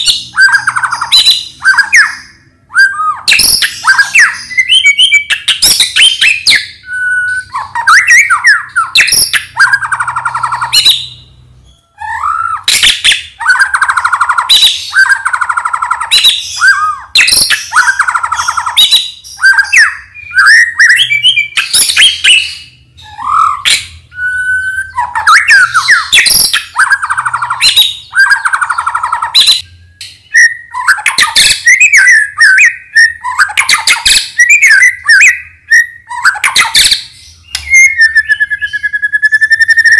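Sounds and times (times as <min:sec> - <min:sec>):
songbird singing: 0:00.0 - 0:39.9.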